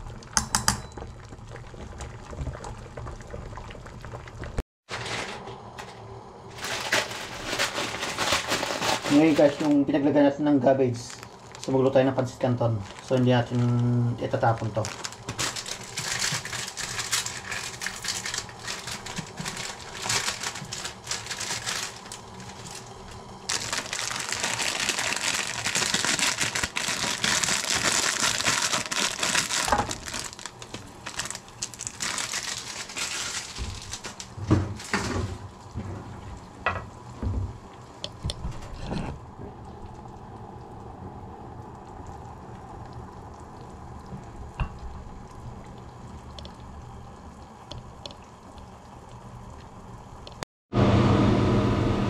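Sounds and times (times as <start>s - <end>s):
plastic packet crinkling: 6.5s - 9.8s, 10.9s - 12.0s, 12.8s - 13.6s, 14.3s - 35.1s.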